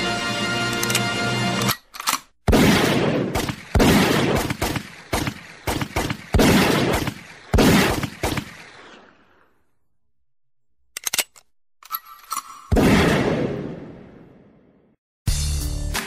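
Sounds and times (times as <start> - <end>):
echoing gunshots: 2.4 - 9.4, 12.7 - 14.6.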